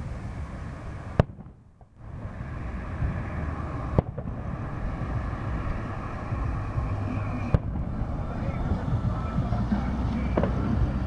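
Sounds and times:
low rumble: 0:00.0 - 0:11.0
fireworks bangs: 0:00.8 - 0:02.4, 0:03.8 - 0:04.9, 0:06.4 - 0:08.0, 0:10.2 - 0:10.9.

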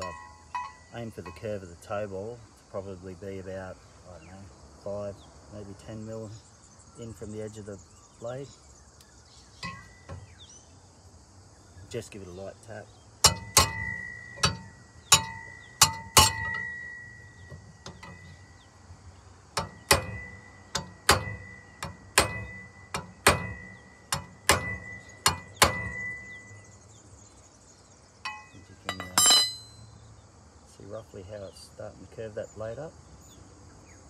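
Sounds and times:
pry bar tapping metal propeller: 0:00.0 - 0:01.6, 0:09.6 - 0:10.3, 0:13.2 - 0:18.4, 0:19.6 - 0:26.6, 0:28.2 - 0:29.8
metallic clatter: 0:13.2 - 0:18.4, 0:19.6 - 0:26.6, 0:28.2 - 0:29.8.

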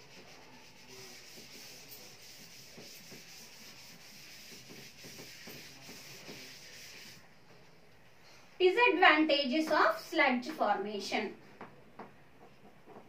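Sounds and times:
eraser scrubbing chalkboard: 0:00.0 - 0:07.2.

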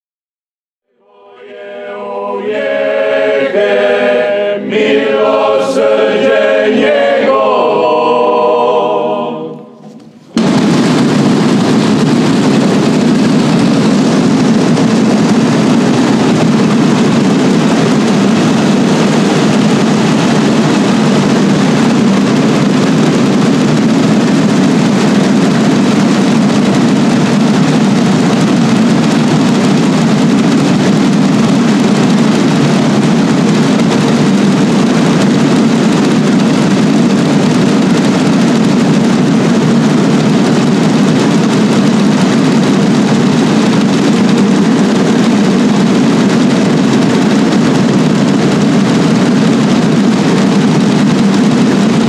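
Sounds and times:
choir singing a hymn: 0:00.9 - 0:10.0
drum roll from group of drummers: 0:10.0 - 0:52.0.

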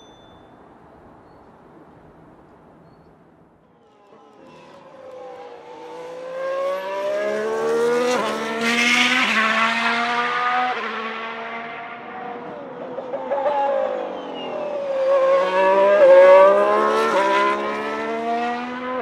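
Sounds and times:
race car engine accelerating: 0:04.0 - 0:19.0.

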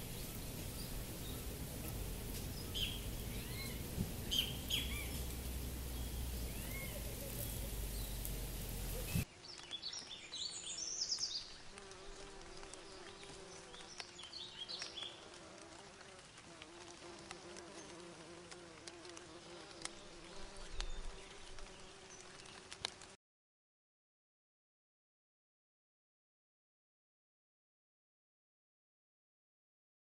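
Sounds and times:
flying insect buzzing: 0:00.0 - 0:09.2, 0:11.7 - 0:23.1
outdoor ambience: 0:00.0 - 0:23.2.

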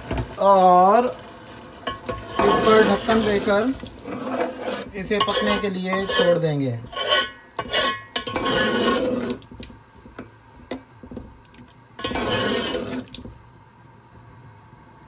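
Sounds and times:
ladle stirring curry in a pot: 0:01.8 - 0:10.2, 0:11.6 - 0:13.2.

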